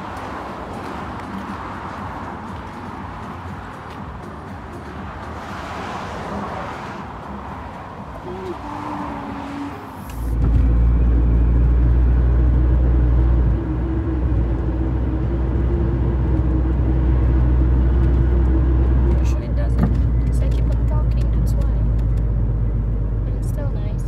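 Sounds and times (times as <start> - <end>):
road and engine rumble in car: 0.0 - 24.0
roadside background noise: 0.0 - 24.0.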